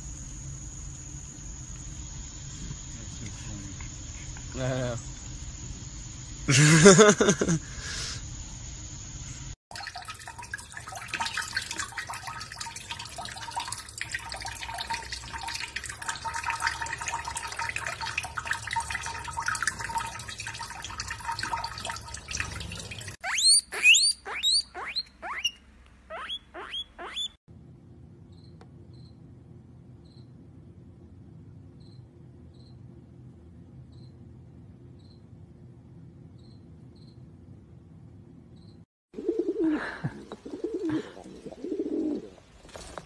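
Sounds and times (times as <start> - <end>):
tap water running into sink: 9.7 - 23.2
guinea pig squeaking: 23.2 - 27.4.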